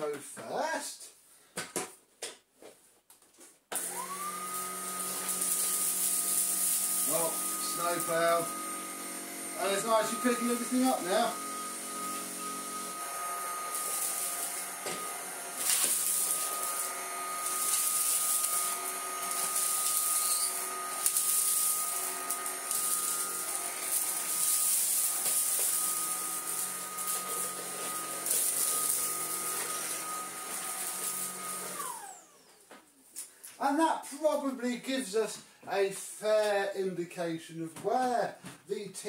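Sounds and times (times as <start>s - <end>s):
vacuum cleaner whine: 3.7s - 32.8s
vacuum motor winding down: 3.8s - 32.6s.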